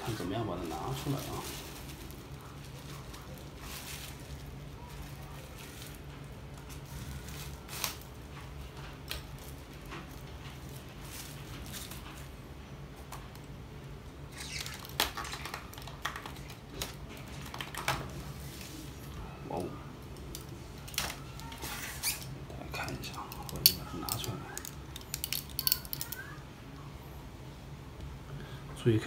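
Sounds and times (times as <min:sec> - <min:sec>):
plastic wrap rustling: 0:00.0 - 0:13.5, 0:14.1 - 0:26.3
steady low hum: 0:15.6 - 0:29.0.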